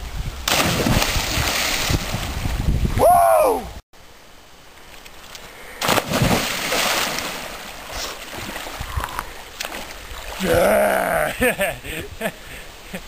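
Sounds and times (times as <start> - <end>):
loud splash of diving: 0.4 - 2.6, 5.8 - 8.7
water churning and sloshing: 0.4 - 2.9, 5.8 - 10.8.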